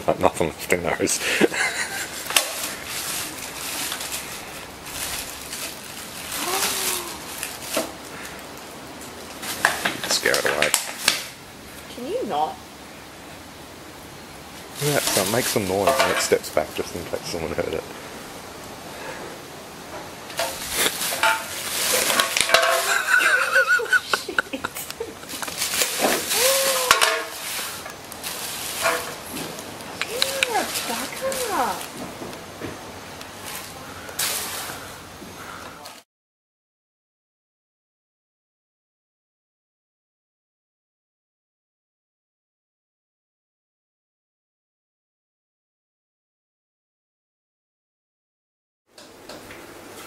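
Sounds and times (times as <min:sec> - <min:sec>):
plastic bag rustling: 0:01.3 - 0:11.3, 0:14.6 - 0:17.4, 0:20.3 - 0:35.1.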